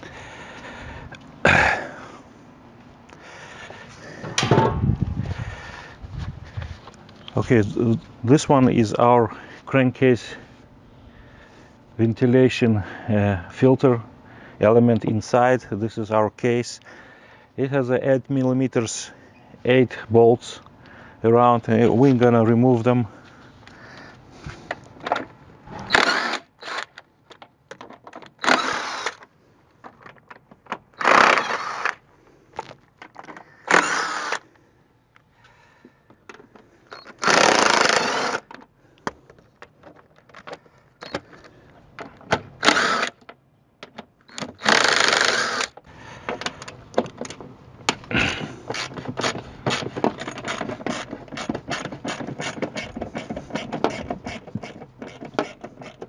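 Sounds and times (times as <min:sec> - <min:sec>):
power ratchet bursts: 0:25.8 - 0:26.9, 0:28.4 - 0:29.2, 0:31.0 - 0:32.0, 0:33.6 - 0:34.4, 0:36.9 - 0:38.5, 0:42.6 - 0:43.2, 0:44.3 - 0:45.8
hand ratchet clicking: 0:44.3 - 0:45.8.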